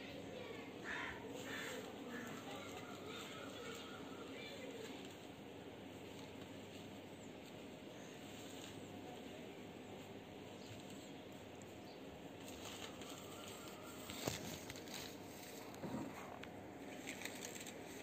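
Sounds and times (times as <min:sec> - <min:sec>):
soft crackles: 0:12.4 - 0:18.0.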